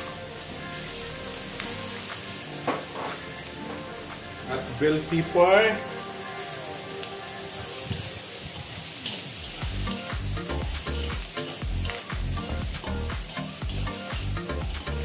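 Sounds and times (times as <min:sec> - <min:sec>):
vegetables sizzling in a wok: 0:00.0 - 0:15.0
background music bass beat: 0:09.6 - 0:15.0.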